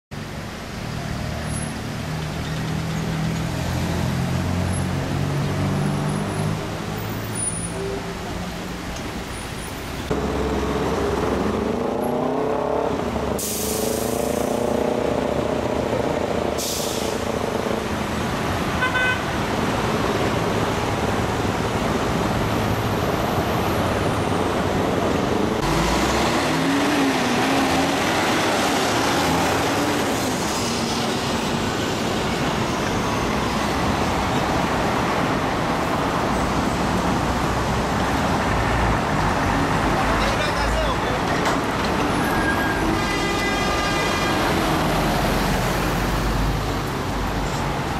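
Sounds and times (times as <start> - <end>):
car and truck engines: 0.1 - 47.9
short air hisses: 13.4 - 14.4
car horn beep: 18.8 - 19.3, 42.5 - 44.5.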